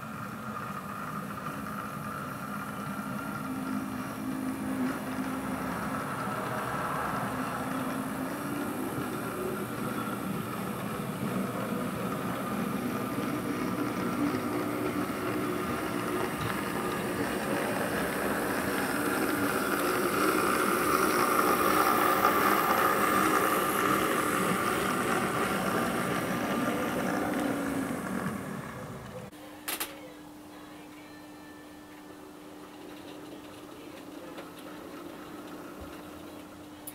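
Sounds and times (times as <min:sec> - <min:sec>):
model train motor whirr: 0:00.0 - 0:29.3
wheels rumbling on rails: 0:00.0 - 0:29.3, 0:32.4 - 0:36.9.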